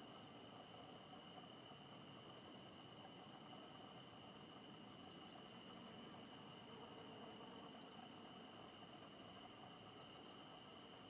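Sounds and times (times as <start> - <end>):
high-pitched insect drone: 0.0 - 11.0
faint high chirps: 2.4 - 3.4.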